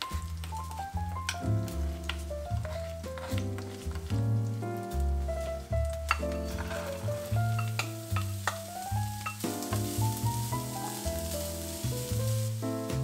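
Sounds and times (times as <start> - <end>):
background music: 0.0 - 13.0
beans clattering into pan: 0.0 - 13.0
beans sizzling in hot oil: 0.0 - 13.0
wooden spatula scraping pan: 1.8 - 4.2, 5.2 - 12.6.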